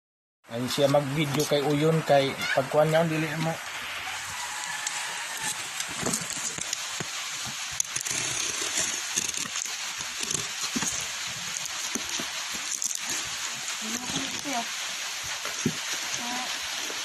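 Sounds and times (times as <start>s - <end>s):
steady hiss: 0.5s - 17.0s
packing tape being cut: 7.7s - 13.3s.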